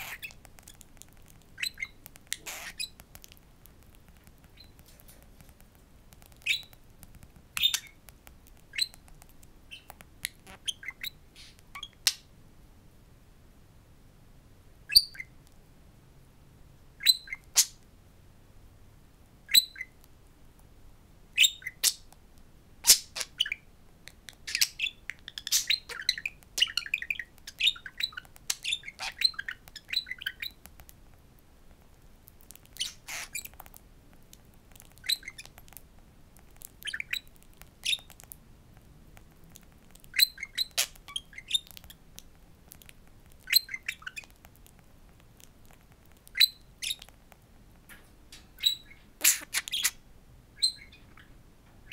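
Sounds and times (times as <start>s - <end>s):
budgerigar chirping and chattering: 0.0s - 5.0s, 6.2s - 6.8s, 7.6s - 9.0s, 9.7s - 12.3s, 14.9s - 15.3s, 17.0s - 17.8s, 19.5s - 20.0s, 21.4s - 22.1s, 22.8s - 23.7s, 24.3s - 30.6s, 32.5s - 33.8s, 34.8s - 35.7s, 36.6s - 38.3s, 39.8s - 42.0s, 42.7s - 44.4s, 45.7s - 47.2s, 48.6s - 50.0s, 50.6s - 51.9s.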